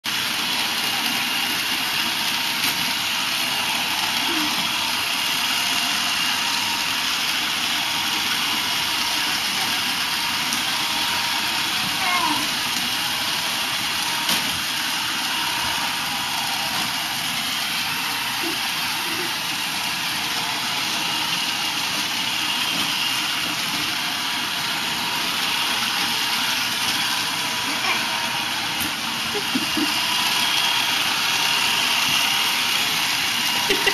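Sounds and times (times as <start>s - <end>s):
robot vacuum whirring: 0.1s - 33.9s.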